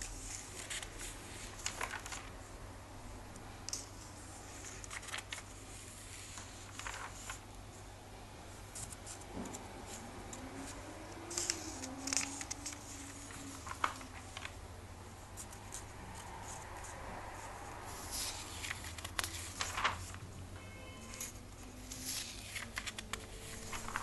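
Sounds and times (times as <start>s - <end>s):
low steady hum: 0.0s - 24.0s
comic book pages turning: 0.1s - 2.4s, 4.6s - 7.5s, 8.8s - 14.6s, 18.0s - 20.2s, 21.2s - 24.0s.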